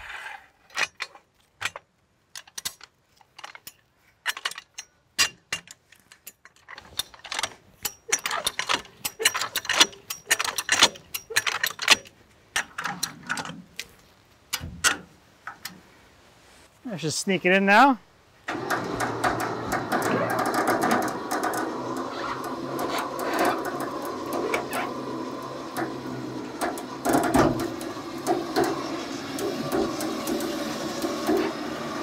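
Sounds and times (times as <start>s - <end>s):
ratchet clicks and chain clinks: 6.2s - 12.1s.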